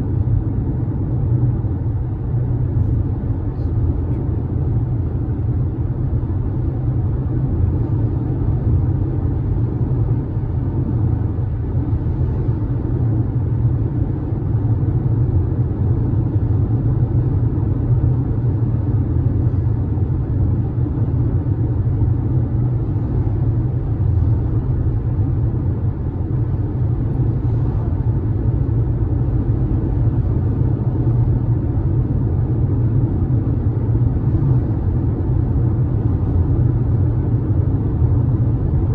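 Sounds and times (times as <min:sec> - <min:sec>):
road and tyre rumble in car: 0:00.0 - 0:38.9.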